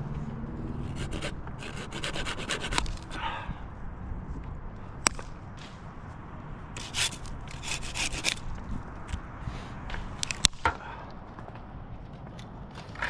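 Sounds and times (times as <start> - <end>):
rubbing and scraping against bark: 0.7 - 3.2, 6.8 - 8.6.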